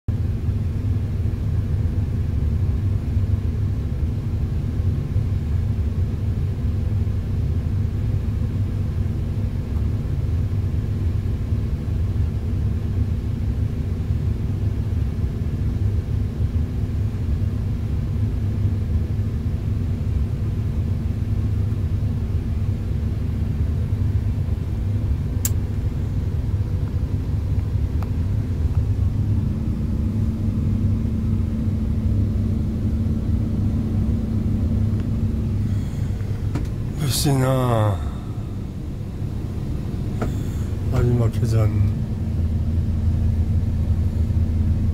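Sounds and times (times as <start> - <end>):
diesel engine rumble: 0.1 - 44.9
steady hum: 0.1 - 44.9
faint click: 25.4 - 25.6.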